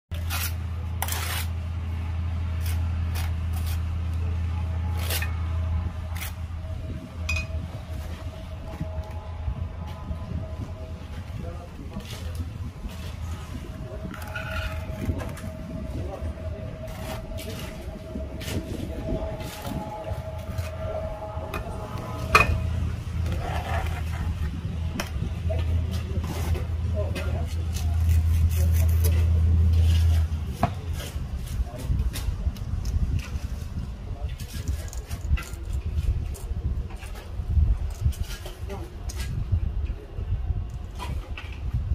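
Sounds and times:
trowel scraping mortar: 0.1s - 1.6s, 2.6s - 4.3s, 25.6s - 30.3s
steady low hum: 0.1s - 34.8s
low outdoor rumble: 0.1s - 41.9s.

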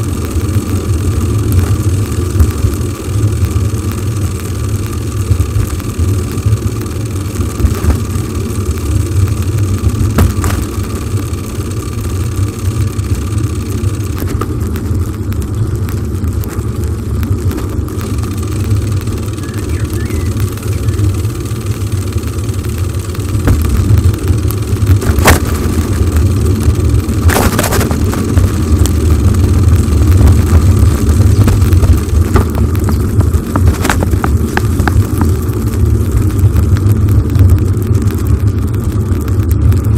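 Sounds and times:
bicycle knocking over bumps: 7.4s - 8.3s, 9.0s - 11.2s, 14.1s - 17.9s, 23.3s - 36.9s.

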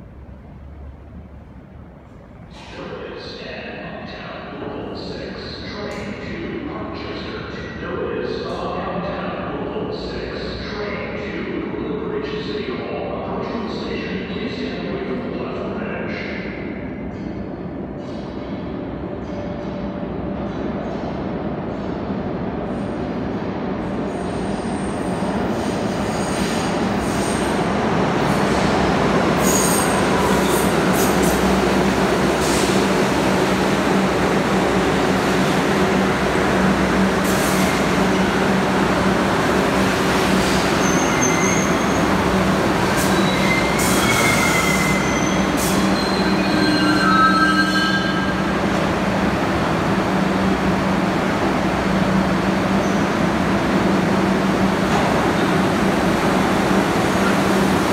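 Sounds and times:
subway train running: 0.0s - 57.9s
train wheels squealing: 40.7s - 42.1s, 43.0s - 48.5s.

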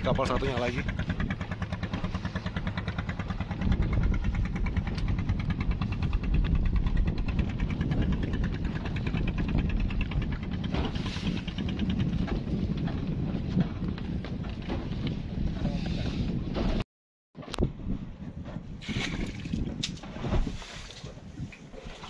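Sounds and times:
boat engine idling: 0.0s - 15.6s.

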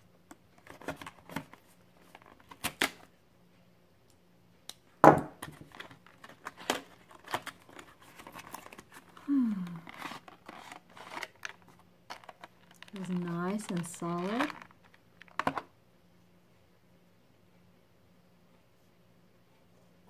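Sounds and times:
cardboard box being opened: 5.6s - 14.7s
packaging tearing: 5.6s - 15.6s.

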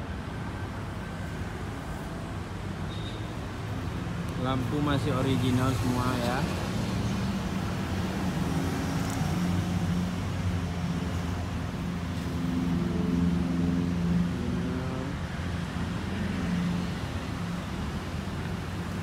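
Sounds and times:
traffic engine hum: 0.0s - 19.0s.

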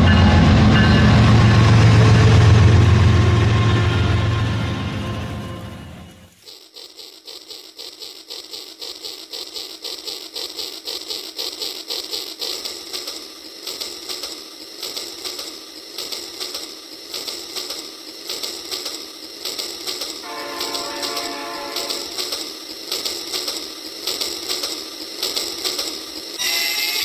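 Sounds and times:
toy train motor clicking whir: 6.2s - 27.0s.

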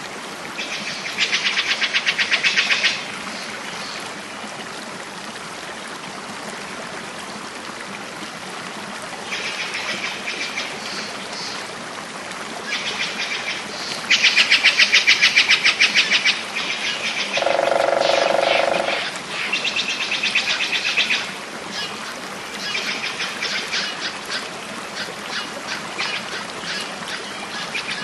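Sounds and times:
songbirds trilling: 17.4s - 19.1s.

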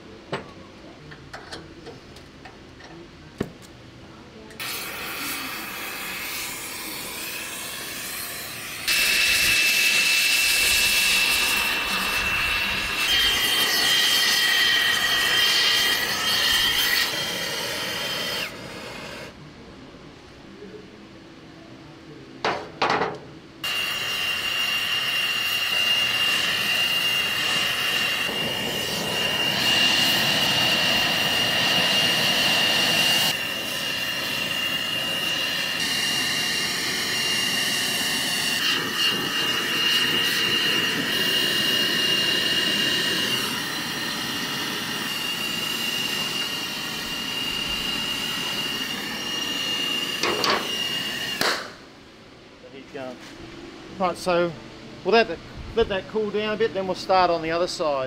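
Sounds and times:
gas torch flame hissing: 4.6s - 19.3s, 23.6s - 51.8s.

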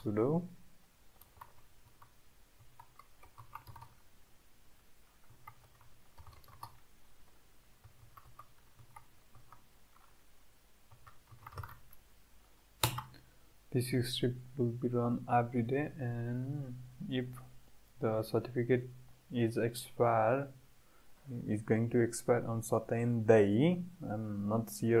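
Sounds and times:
keyboard key clicks: 12.8s - 13.1s.

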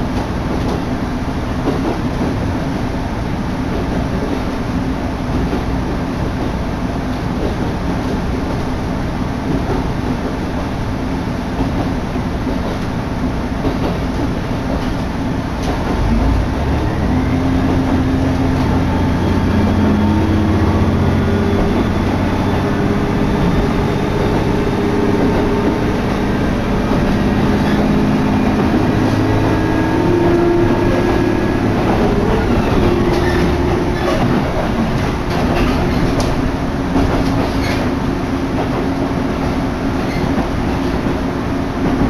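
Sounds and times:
wheels rumbling on rails: 0.0s - 42.0s
engine hum: 15.7s - 39.8s.

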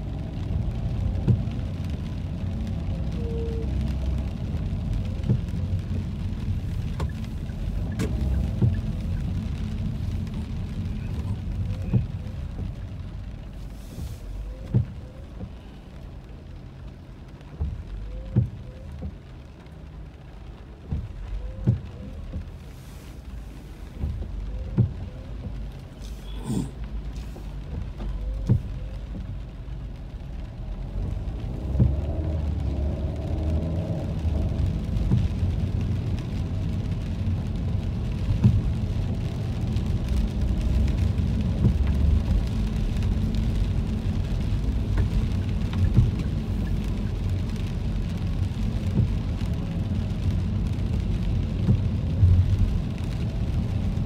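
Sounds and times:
car engine and road rumble: 0.0s - 54.0s
rain tapping on car: 0.0s - 54.0s.

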